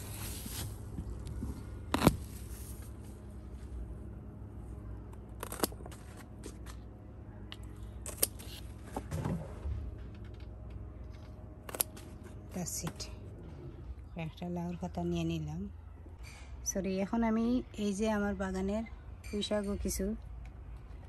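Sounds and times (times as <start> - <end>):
low background rumble: 0.0 - 21.0
scissors snipping: 5.4 - 5.9, 8.0 - 8.6.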